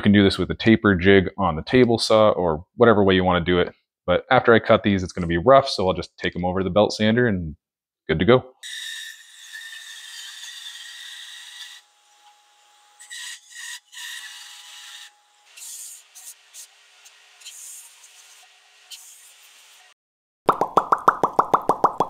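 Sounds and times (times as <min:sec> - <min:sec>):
bandsaw cutting wood: 0:08.6 - 0:19.9.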